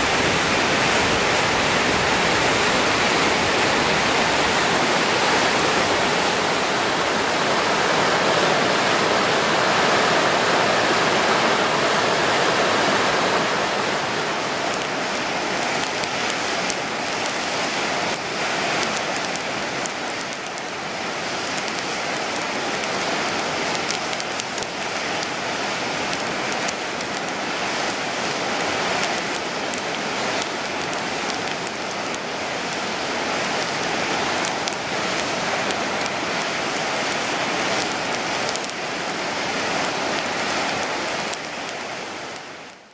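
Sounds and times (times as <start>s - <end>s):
river rapids rushing: 0.0s - 42.8s
campfire crackling and popping: 14.1s - 42.9s.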